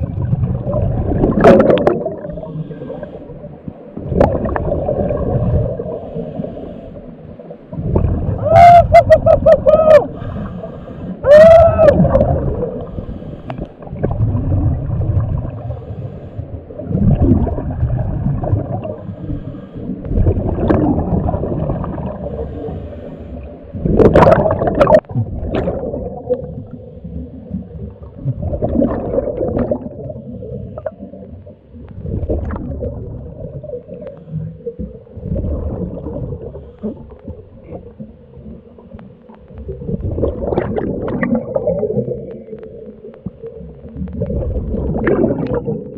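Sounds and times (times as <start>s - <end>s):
exhaled bubbles gurgling: 0.0s - 45.9s
diver breathing through regulator: 2.2s - 3.6s, 5.8s - 7.4s, 10.1s - 11.2s, 12.7s - 13.9s, 15.5s - 16.7s, 18.8s - 20.2s, 22.0s - 23.8s.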